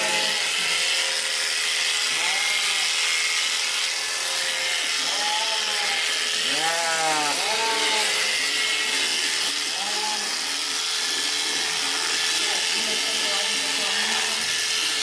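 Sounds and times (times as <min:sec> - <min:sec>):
sheep bleating: 0:00.0 - 0:01.0, 0:01.8 - 0:03.3, 0:04.6 - 0:10.7, 0:12.6 - 0:14.6
electric sheep shears running: 0:00.0 - 0:15.0.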